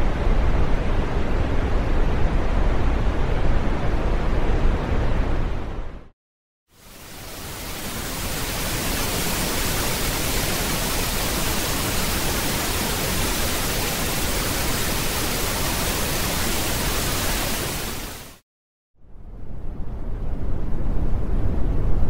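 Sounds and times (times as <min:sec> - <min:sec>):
pink noise hiss: 0:06.7 - 0:18.4.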